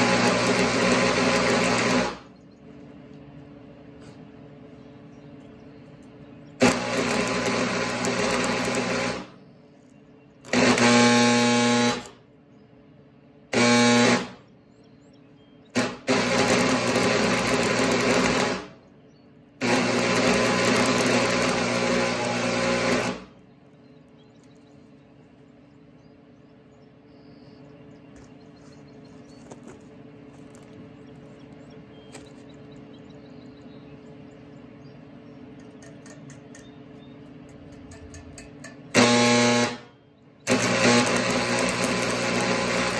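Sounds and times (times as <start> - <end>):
welding arc crackling: 0.0 - 2.3, 6.6 - 9.4, 10.4 - 12.2, 13.5 - 14.3, 15.8 - 18.8, 19.6 - 23.4, 38.1 - 42.9
low steady hum: 0.0 - 42.9.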